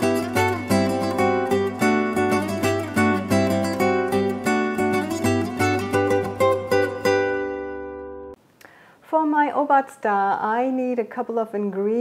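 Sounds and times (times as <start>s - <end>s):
plucked guitar notes: 0.0s - 8.4s.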